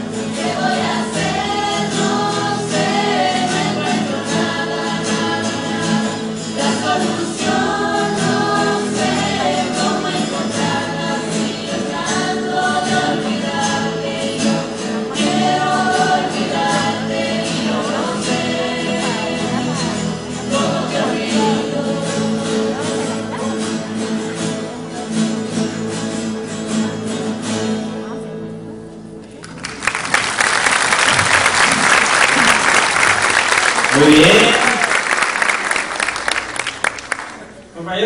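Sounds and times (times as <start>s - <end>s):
group of singers: 0.0s - 25.2s
strummed acoustic guitars: 0.0s - 37.6s.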